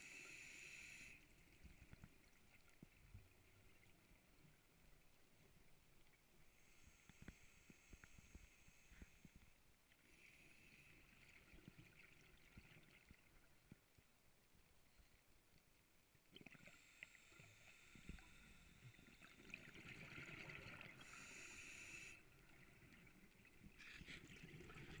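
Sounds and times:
diver breathing through regulator: 0.0 - 1.2, 21.0 - 22.2.

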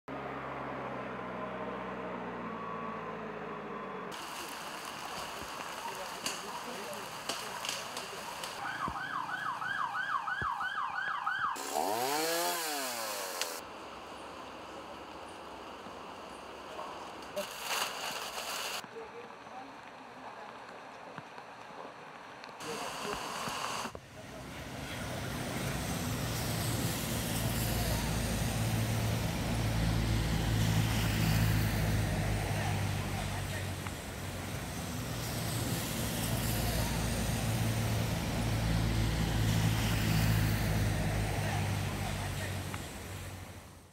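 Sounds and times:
vehicle engine humming: 0.1 - 17.4, 18.7 - 43.9
road noise: 0.1 - 43.9
emergency siren wailing: 1.2 - 6.2, 7.5 - 11.6
chainsaw revving: 11.6 - 13.6.

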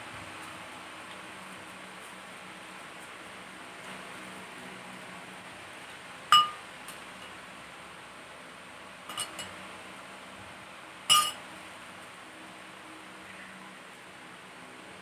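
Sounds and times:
spoon clinking against bowl: 6.4 - 6.6, 9.1 - 9.5, 11.1 - 11.4.

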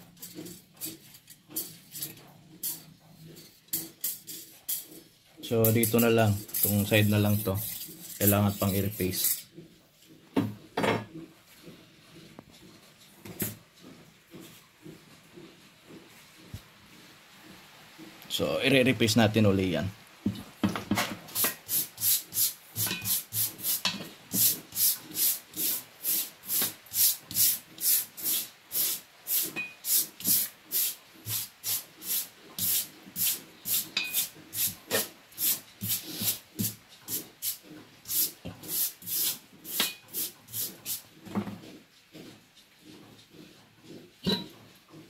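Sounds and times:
metal rasping on abrasive paper: 5.4 - 9.4, 21.4 - 44.1.

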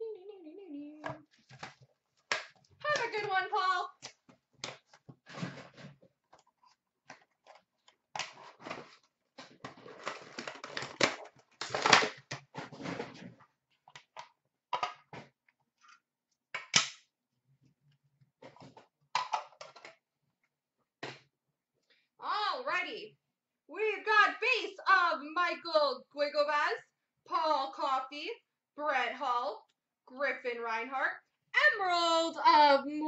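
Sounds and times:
packaging crinkling and scraping: 4.8 - 13.4
plastic snapping: 16.6 - 17.0.

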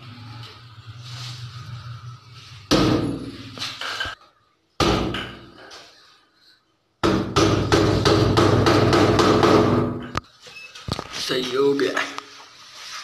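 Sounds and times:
knocking on door: 7.0 - 10.0.

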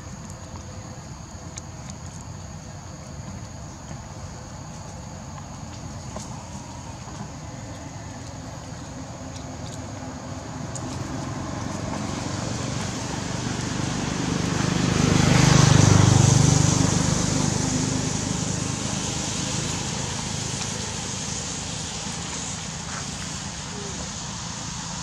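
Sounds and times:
motor vehicle passing by: 6.1 - 25.0.

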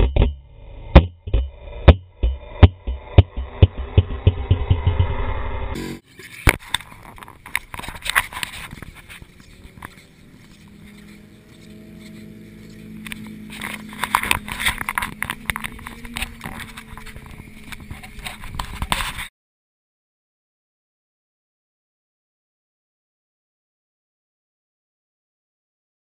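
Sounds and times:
low steady hum: 0.0 - 19.2.

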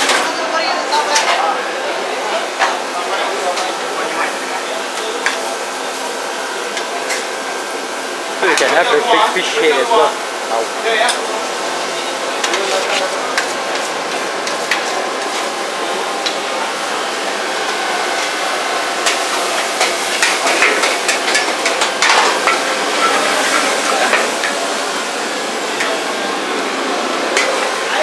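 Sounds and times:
noodles sizzling in a wok: 9.0 - 28.0.

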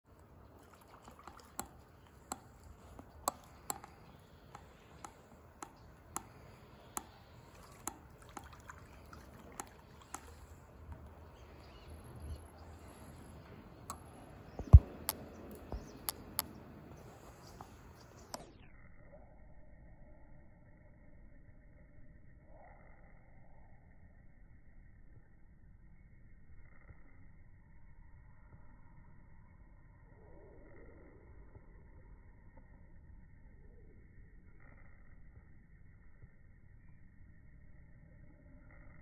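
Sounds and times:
sharp ticks or drips: 0.1 - 18.5.

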